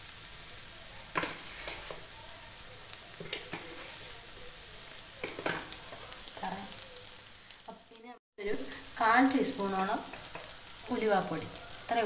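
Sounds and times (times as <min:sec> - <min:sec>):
food sizzling in hot oil: 0:00.0 - 0:12.0
spoon scraping metal pan: 0:01.2 - 0:02.1, 0:03.2 - 0:04.2.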